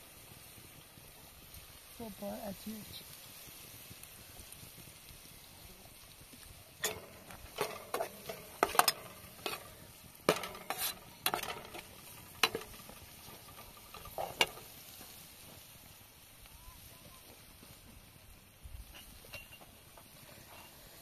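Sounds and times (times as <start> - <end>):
onions sizzling in oil: 0.0 - 21.0
metal spoon scraping frying pan: 6.8 - 14.8.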